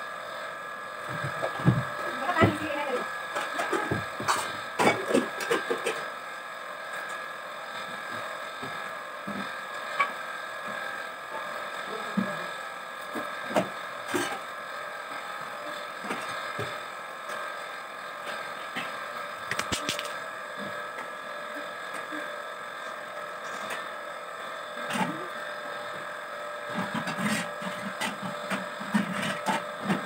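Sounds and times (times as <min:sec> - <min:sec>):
steady background hum: 0:00.0 - 0:30.0.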